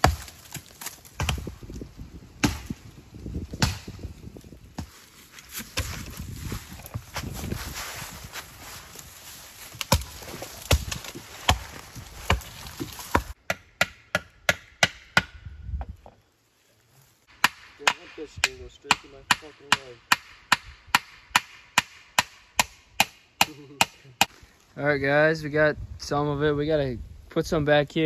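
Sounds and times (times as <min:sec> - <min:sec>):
rustling: 0:04.5 - 0:13.4.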